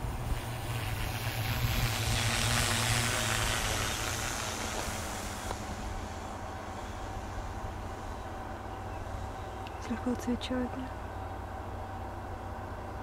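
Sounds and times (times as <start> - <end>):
drone propellers flying past: 0.0 - 9.6.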